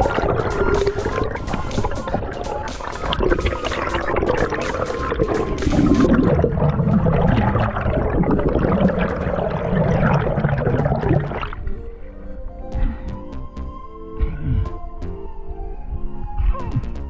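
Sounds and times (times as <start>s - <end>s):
underwater gurgling bubbles: 0.0s - 11.7s.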